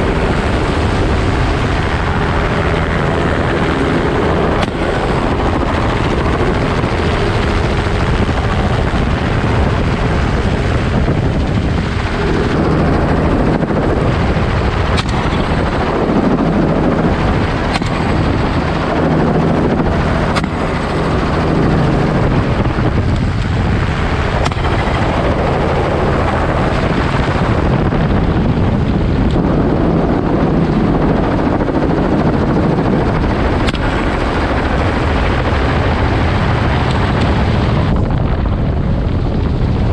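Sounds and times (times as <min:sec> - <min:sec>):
helicopter rotor and turbine: 0:00.0 - 0:39.9
wind buffeting microphone: 0:00.0 - 0:39.9.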